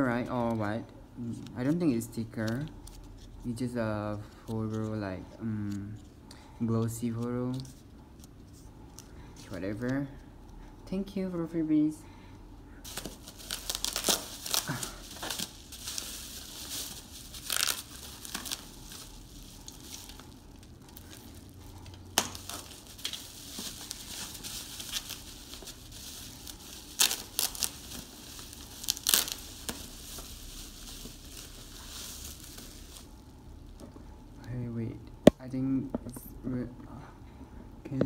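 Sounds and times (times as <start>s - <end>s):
packaging crinkling and rustling: 12.9s - 33.8s.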